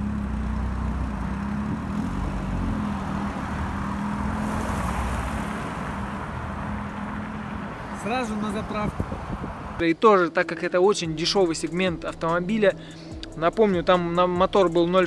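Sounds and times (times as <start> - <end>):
car engine pulling away: 0.0 - 9.8.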